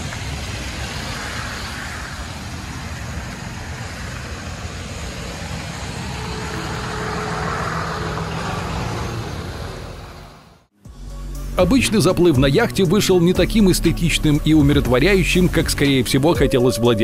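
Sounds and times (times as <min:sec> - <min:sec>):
traffic on wet road: 0:00.0 - 0:10.7.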